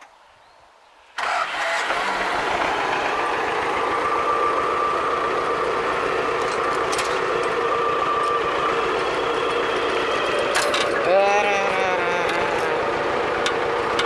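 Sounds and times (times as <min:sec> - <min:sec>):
diesel tractor engine idling: 0:01.2 - 0:14.0.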